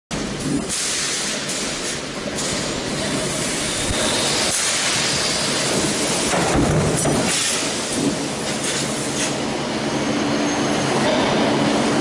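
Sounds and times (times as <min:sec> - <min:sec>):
machinery hiss: 0:00.4 - 0:06.5.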